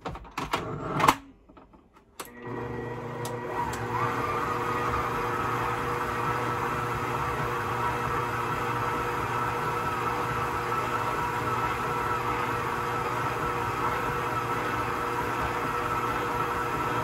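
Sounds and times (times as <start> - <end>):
stand mixer kneading dough: 2.3 - 17.0.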